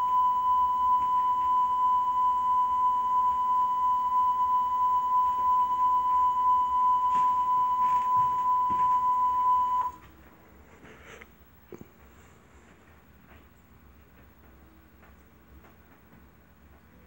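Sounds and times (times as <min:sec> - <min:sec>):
high-pitched electronic tone: 0:00.0 - 0:10.0.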